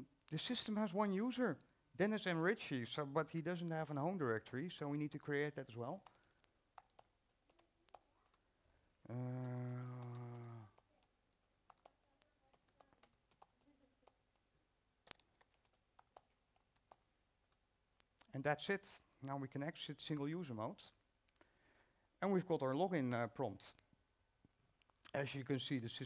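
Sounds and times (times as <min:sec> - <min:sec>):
laptop keyboard keystrokes: 0:06.0 - 0:08.4, 0:09.5 - 0:14.4, 0:15.1 - 0:17.6
man humming low note: 0:09.1 - 0:10.7.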